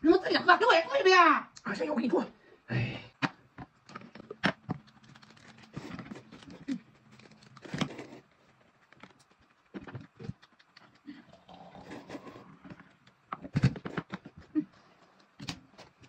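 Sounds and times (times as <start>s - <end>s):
noodles being slurped: 10.3s - 12.6s.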